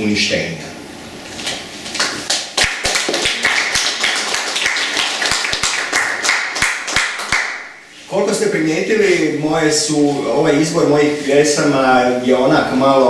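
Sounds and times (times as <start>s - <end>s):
audience applauding: 2.0s - 7.7s.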